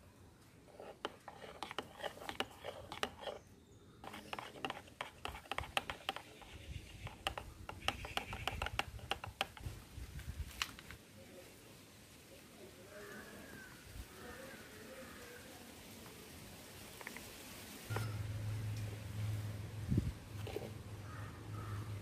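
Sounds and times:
spoon stirring in a bowl: 0.7s - 3.4s, 4.0s - 9.7s, 17.9s - 18.4s, 20.4s - 20.8s.

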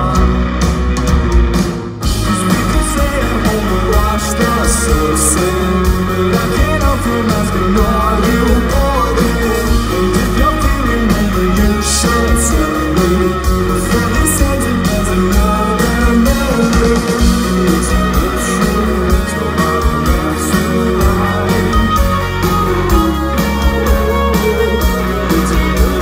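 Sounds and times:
live rock band playing: 0.0s - 26.0s.

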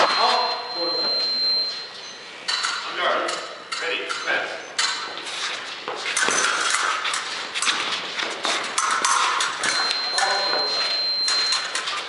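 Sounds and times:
fencing blades clashing: 2.4s - 10.4s, 11.2s - 12.0s
footwork on gym floor: 2.7s - 12.0s.

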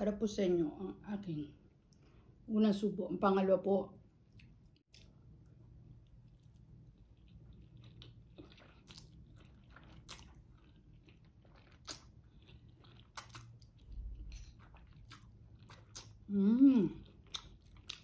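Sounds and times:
chewing: 4.3s - 18.0s.

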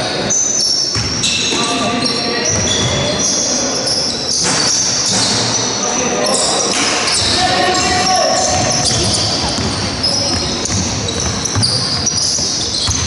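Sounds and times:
trainers squeaking on court: 0.0s - 13.0s
basketball bouncing: 8.4s - 13.0s.

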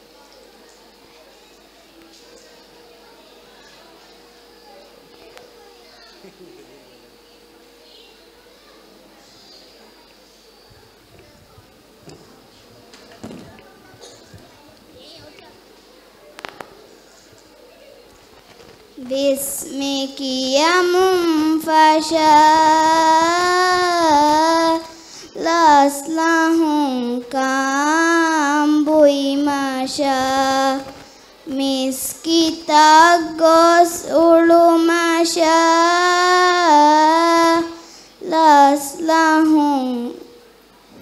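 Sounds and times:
girl singing into microphone: 19.0s - 40.3s.

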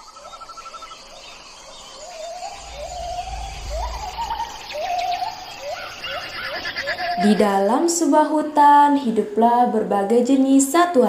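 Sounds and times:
birds: 0.0s - 7.7s
forest insects: 0.0s - 8.1s
low rumble: 2.1s - 5.8s.

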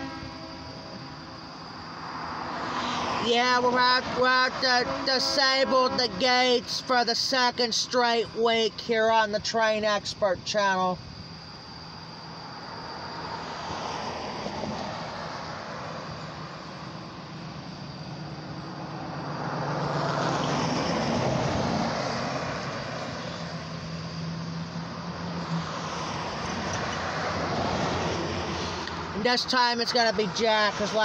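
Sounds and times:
road traffic passing: 0.0s - 31.0s
low engine hum: 11.0s - 31.0s.

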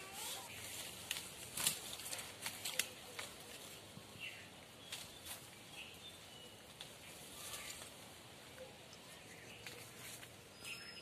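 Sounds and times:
leaves and twigs rustling: 0.0s - 11.0s
twigs snapping: 0.8s - 3.4s
bird chirping: 4.2s - 7.9s, 8.5s - 11.0s.

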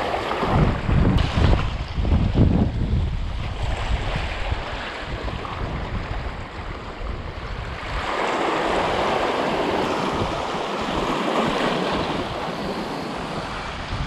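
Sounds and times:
wind rumbling on microphone: 0.0s - 14.0s
small waves washing over rocks: 7.7s - 13.8s.

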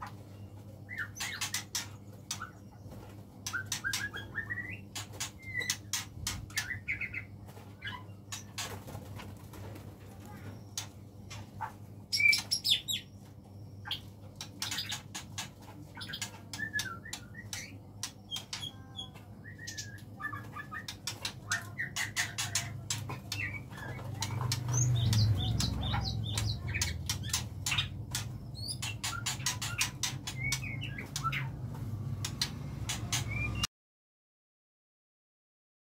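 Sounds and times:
birds flapping wings: 8.4s - 10.5s
bird chirps and squawks: 19.6s - 31.6s.

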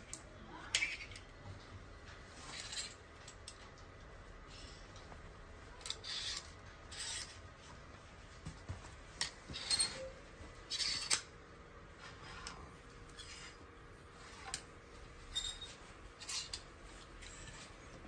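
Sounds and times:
hangers scraping along metal rail: 2.2s - 3.3s, 5.8s - 7.5s, 9.2s - 11.3s, 12.0s - 18.0s.

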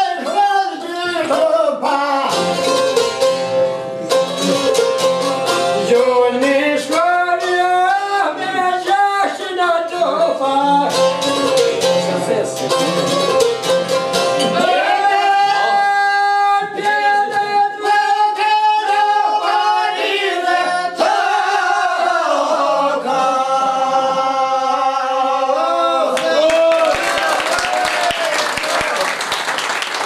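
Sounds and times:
plucked lute: 1.2s - 8.6s, 10.7s - 15.0s.

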